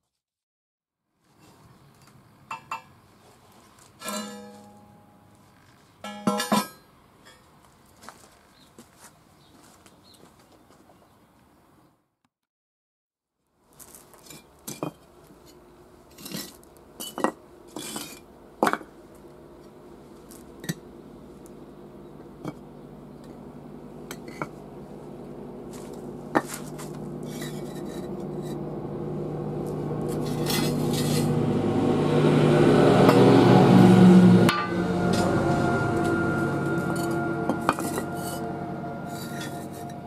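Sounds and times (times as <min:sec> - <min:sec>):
bricks and metal knocking on paving: 0:14.4 - 0:15.0, 0:16.2 - 0:19.0, 0:26.3 - 0:28.0
steady hum: 0:18.3 - 0:40.0.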